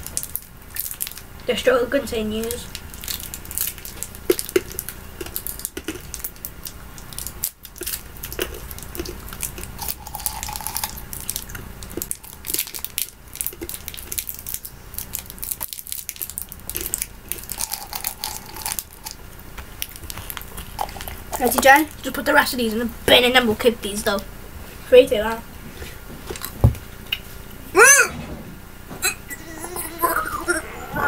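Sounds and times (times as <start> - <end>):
candy wrappers crinkling: 0.0 - 1.3, 2.3 - 22.2.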